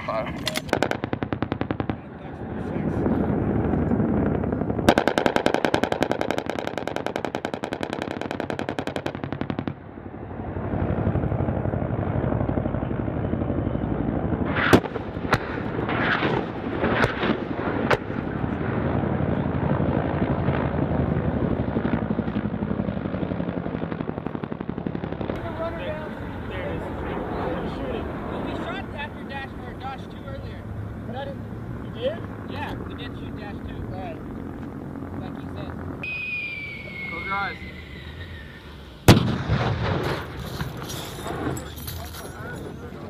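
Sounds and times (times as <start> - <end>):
helicopter rotor and engine: 0.0 - 43.0
rotary cannon firing: 0.4 - 2.1, 2.8 - 9.8, 14.4 - 18.9, 39.0 - 42.5
sharp cracks: 0.4 - 2.1, 4.8 - 9.8, 14.5 - 18.3, 39.0 - 42.3.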